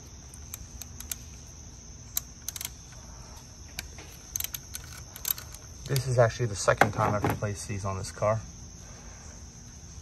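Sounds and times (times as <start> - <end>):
ratchet wrench clicking: 0.3 - 1.4, 2.1 - 3.0, 3.7 - 6.2.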